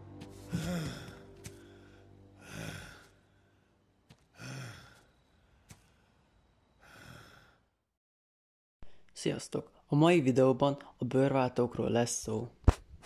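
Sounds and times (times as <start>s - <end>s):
low groan: 0.3s - 3.6s
man breathing heavily: 0.3s - 7.8s.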